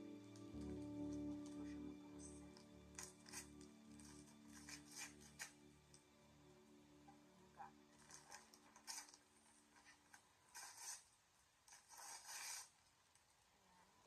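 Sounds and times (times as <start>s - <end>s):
background music: 0.0s - 9.8s
rustling of gift packaging: 0.3s - 6.0s, 7.9s - 13.0s.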